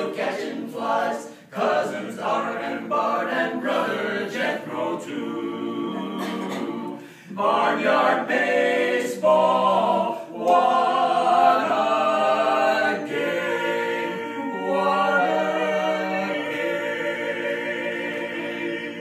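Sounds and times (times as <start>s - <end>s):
vocal quartet singing a cappella: 0.0s - 19.0s.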